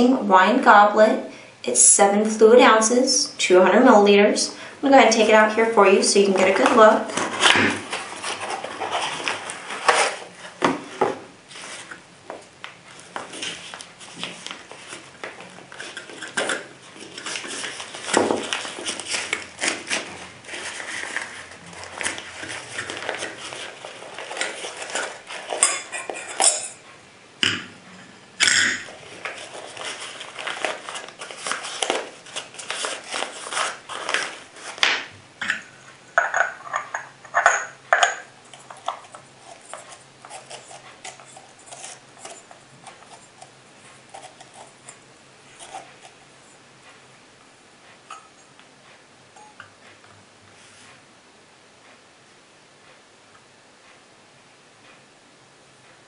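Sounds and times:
fabric rustling: 6.3 - 12.0, 28.8 - 34.9
metal goblet clinking: 25.6 - 26.8.

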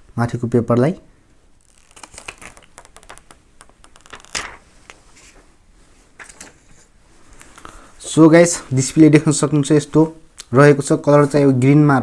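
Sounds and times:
paper sheet peeling and crinkling: 1.6 - 5.5.

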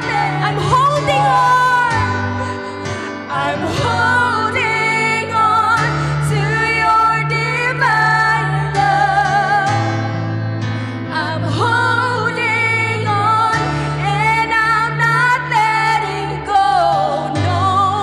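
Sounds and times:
person singing: 0.0 - 10.1.

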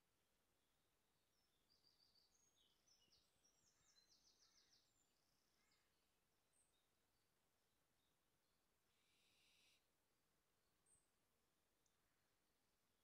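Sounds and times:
songbird chirps and trill: 0.0 - 8.6.

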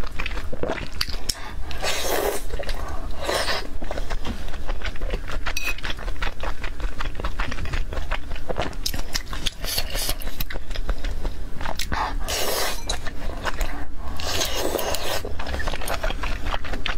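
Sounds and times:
wet chewing and lip-smacking: 0.0 - 16.9
slurp: 11.9 - 13.0.

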